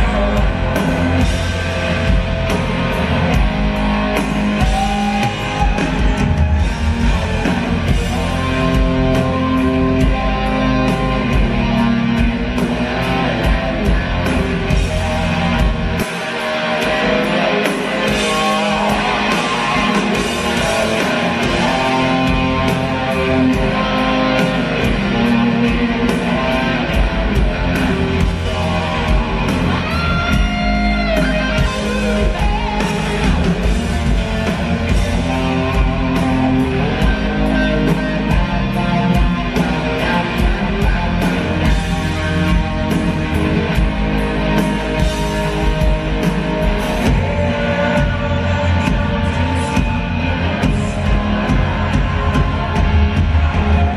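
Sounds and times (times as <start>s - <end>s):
live rock band playing: 0.0s - 53.9s.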